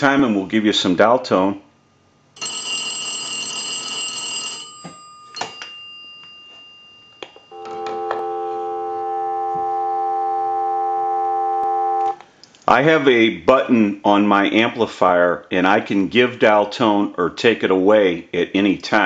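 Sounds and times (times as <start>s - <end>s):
dial tone: 2.4s - 4.9s, 7.5s - 12.2s
payphone bell ringing: 2.4s - 12.2s.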